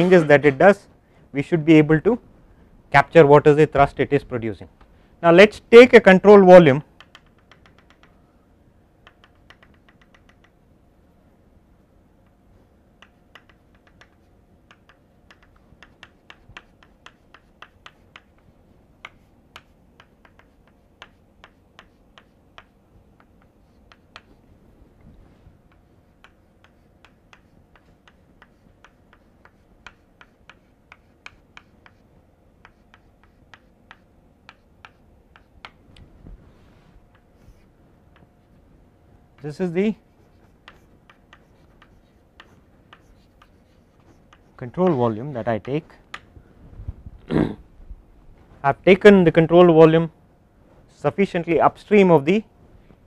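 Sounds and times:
chalk tapping on a blackboard: 7.0s - 8.2s, 9.0s - 10.6s, 12.2s - 24.5s, 25.6s - 35.8s, 37.1s - 38.6s, 39.4s - 46.3s.

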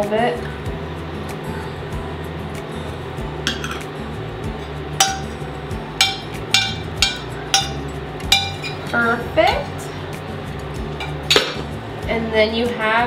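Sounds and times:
background music: 0.0s - 13.0s
metal spoon clinking on pan: 5.0s - 5.4s, 6.0s - 8.9s.

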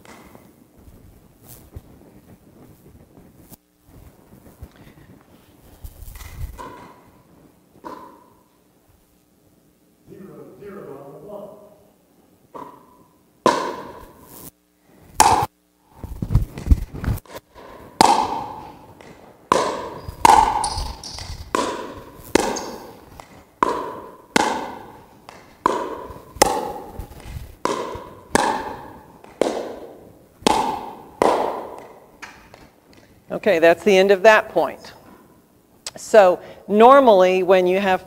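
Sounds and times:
paddles hitting plastic ball: 7.8s - 8.4s, 12.5s - 14.2s, 15.2s - 15.5s, 16.3s - 33.2s.

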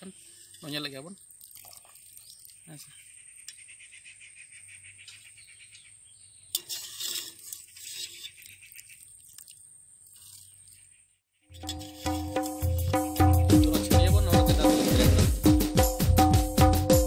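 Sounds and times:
strainer splashing in pot: 0.2s - 2.6s, 6.6s - 10.8s, 11.6s - 12.8s
insect chirring: 0.6s - 4.7s
music: 11.5s - 17.0s.

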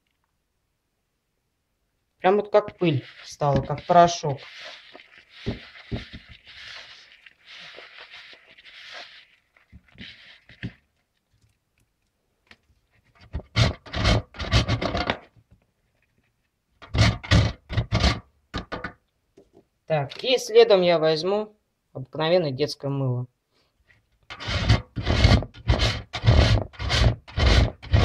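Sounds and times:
hand rustling soap flakes: 2.4s - 12.1s
metal grater scraping a bowl: 2.6s - 10.8s, 13.4s - 15.3s, 16.8s - 18.2s, 24.3s - 28.0s.

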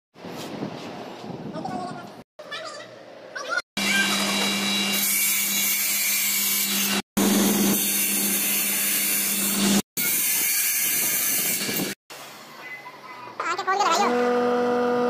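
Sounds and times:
table saw cutting wood: 3.8s - 12.0s, 14.1s - 15.0s.

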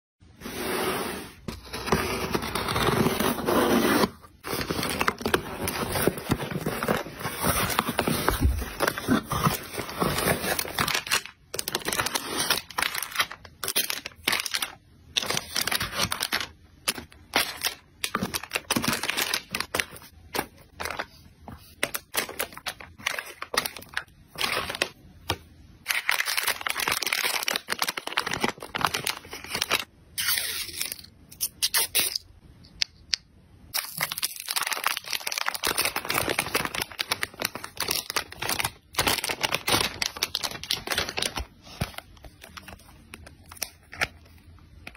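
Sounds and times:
plastic packaging crinkling: 2.2s - 29.9s, 33.8s - 44.9s.

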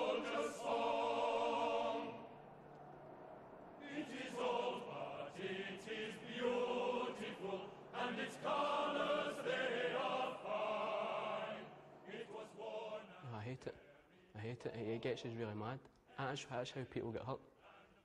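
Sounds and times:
male choir singing: 0.0s - 2.4s, 3.8s - 14.6s, 17.6s - 18.0s.

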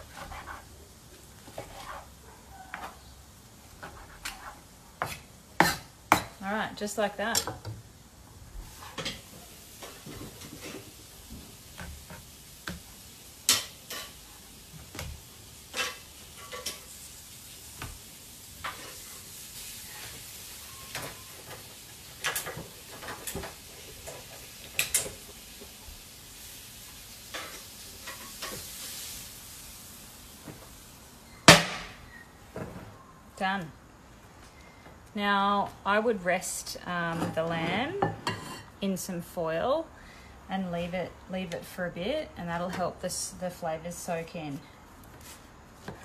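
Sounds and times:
meat sizzling on a grill: 7.8s - 31.6s.

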